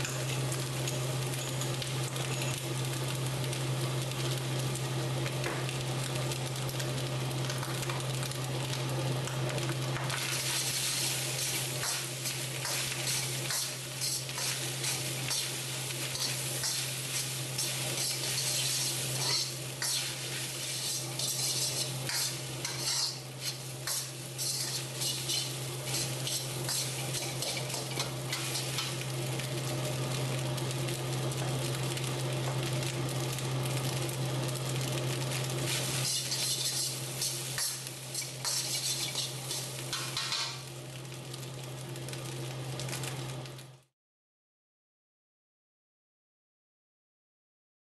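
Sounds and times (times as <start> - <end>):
rice sizzling in a wok: 0.0 - 43.9
metal spatula scraping a wok: 10.2 - 29.0, 35.7 - 40.6.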